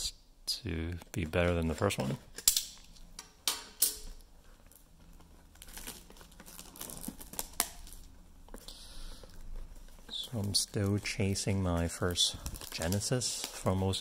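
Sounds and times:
plastic film rustling and crinkling: 0:04.1 - 0:14.0.

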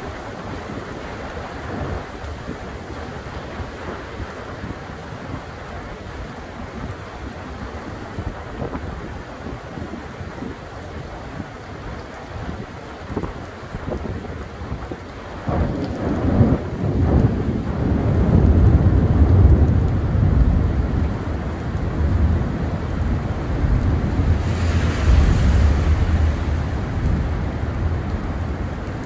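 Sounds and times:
heavy rain hissing: 0:13.2 - 0:29.0
rolling thunder: 0:15.4 - 0:29.0.

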